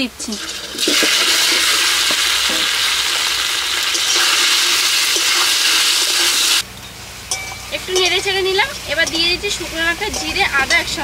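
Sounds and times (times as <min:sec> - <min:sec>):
food sizzling in hot oil: 0:00.2 - 0:06.6
spatula stirring in wok: 0:00.5 - 0:06.6.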